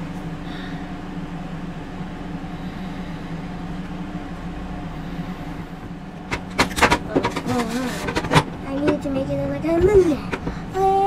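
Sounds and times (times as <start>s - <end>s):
steady low appliance hum: 0.0s - 11.0s.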